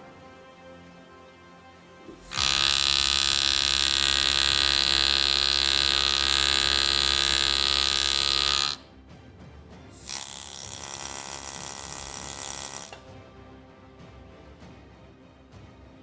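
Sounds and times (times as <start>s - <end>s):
powered handpiece running: 2.2s - 8.8s, 10.0s - 13.0s.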